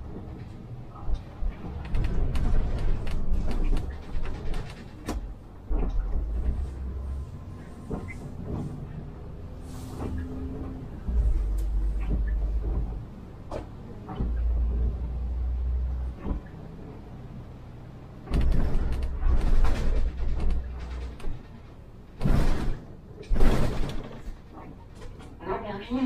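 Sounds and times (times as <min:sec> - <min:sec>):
bus engine rumble: 0:00.0 - 0:26.0
cabin rattles and clicks: 0:01.2 - 0:06.6, 0:18.2 - 0:25.4.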